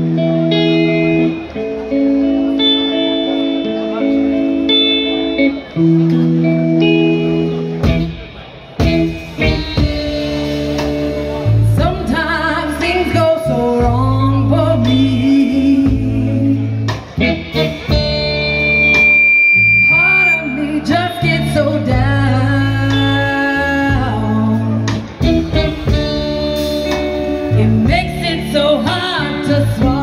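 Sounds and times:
drums: 0:00.0 - 0:30.0
electric bass: 0:00.0 - 0:30.0
electric guitar: 0:00.0 - 0:30.0
woman singing: 0:11.6 - 0:16.9, 0:19.9 - 0:25.0, 0:27.5 - 0:30.0.

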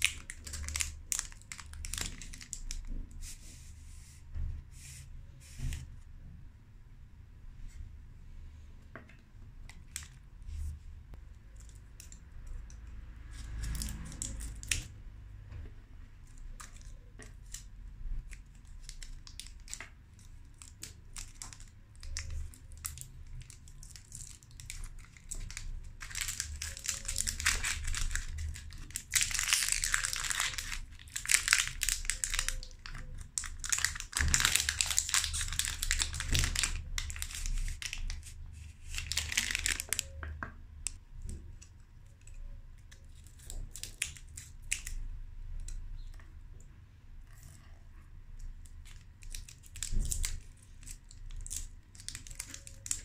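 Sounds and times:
candy wrapper crinkling and tearing: 0:00.0 - 0:03.0, 0:13.3 - 0:14.9, 0:16.4 - 0:40.2, 0:42.3 - 0:45.8, 0:48.4 - 0:53.0.

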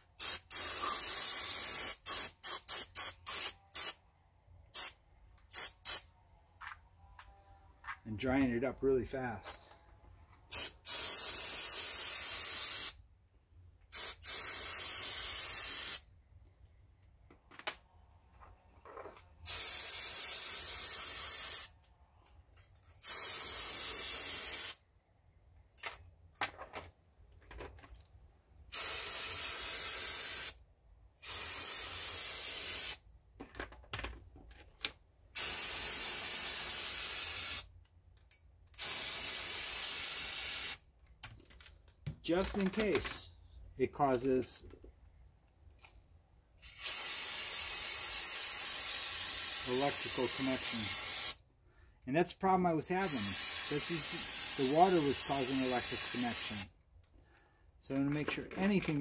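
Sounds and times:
aerosol spray hissing: 0:00.2 - 0:04.0, 0:46.7 - 0:51.4, 0:53.0 - 0:56.7.

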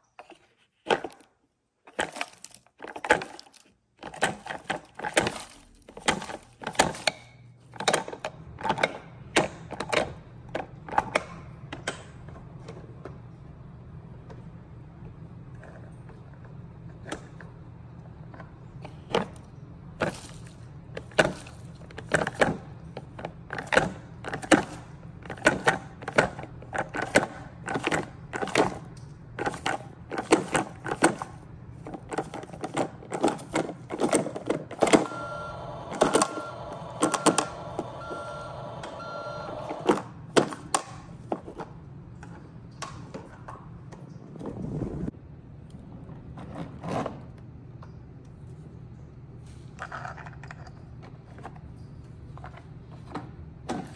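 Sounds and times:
toy electronic beeps: 0:35.0 - 0:39.9.

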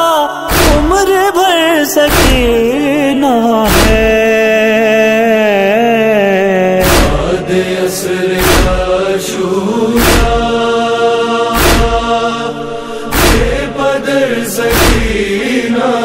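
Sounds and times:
wordless vocal chorus chanting: 0:00.0 - 0:16.0
chest-beating strikes: 0:00.5 - 0:01.0, 0:02.1 - 0:02.6, 0:03.7 - 0:04.2, 0:06.8 - 0:07.4, 0:08.4 - 0:09.0, 0:10.0 - 0:10.6, 0:11.6 - 0:12.2, 0:13.0 - 0:13.8, 0:14.7 - 0:15.4.

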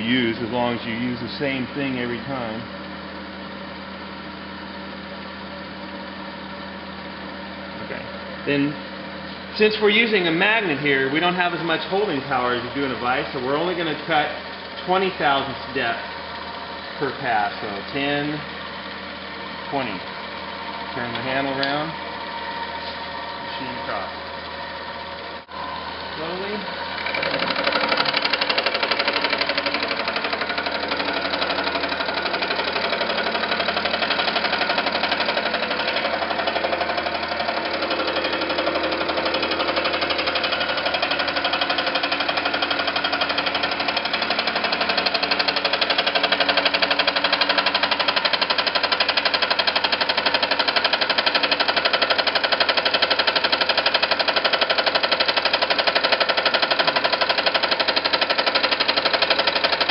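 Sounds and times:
milling cutter rattling in metal: 0:27.0 - 0:59.9.

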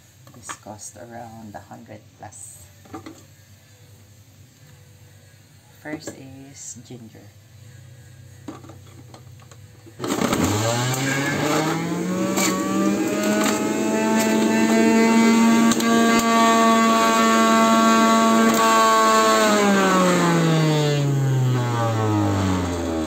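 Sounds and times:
electric juicer motor humming: 0:08.4 - 0:23.0.

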